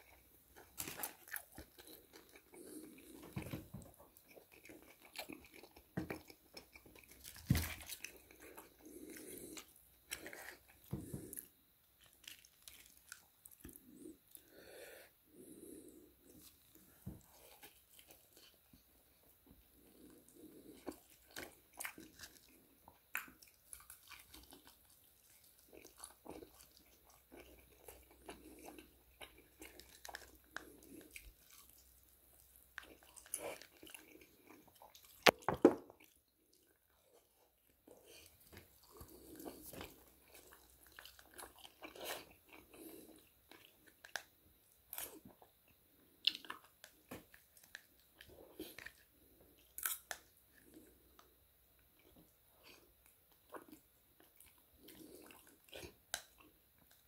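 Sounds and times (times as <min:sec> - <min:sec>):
crunchy chewing and biting: 0:00.0 - 0:14.2, 0:19.8 - 0:36.2, 0:37.9 - 0:45.6, 0:46.2 - 0:51.3.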